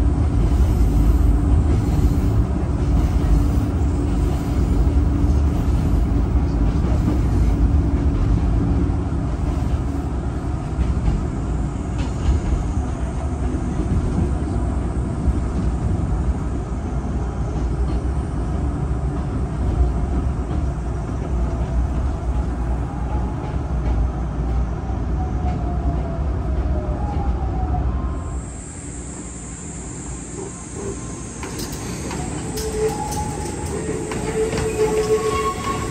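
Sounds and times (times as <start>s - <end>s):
train wheels rumbling on rails: 0.0s - 35.9s
faint squeal: 28.1s - 35.9s.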